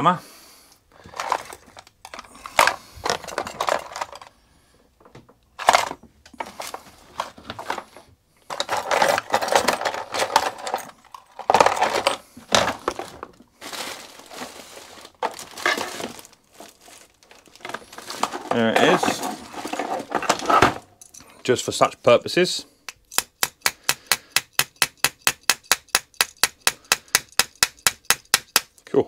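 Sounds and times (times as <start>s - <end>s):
metal hand tools clinking: 21.0s - 21.4s.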